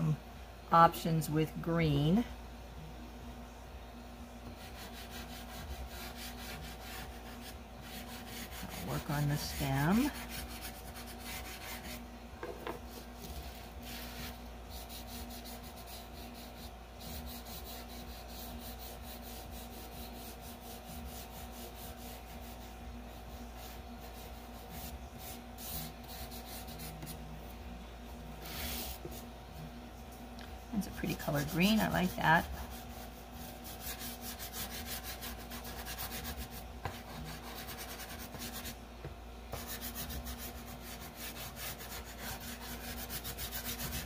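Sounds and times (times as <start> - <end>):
chalk pastel stroking paper: 4.6 - 12.0, 12.9 - 27.2, 28.4 - 29.3, 30.8 - 38.8, 39.5 - 44.0
fingers rubbing on paper: 4.6 - 12.0, 12.9 - 27.2, 30.8 - 38.8, 39.5 - 44.0.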